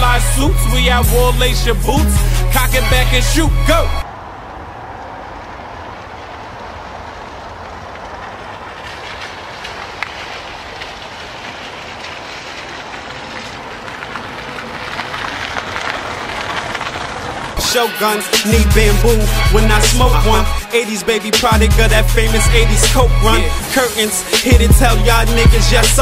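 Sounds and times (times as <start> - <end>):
car engine rumble: 0.0 - 26.0
tyres crunching on gravel: 0.0 - 26.0.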